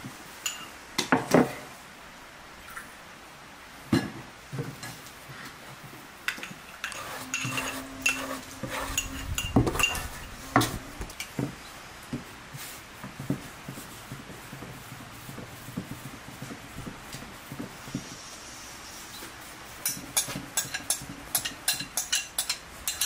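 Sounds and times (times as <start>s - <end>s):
spoon against glass bowl: 0.4s - 0.7s, 6.8s - 10.8s, 19.8s - 23.0s
crockery clinking and knocking: 6.4s - 10.8s.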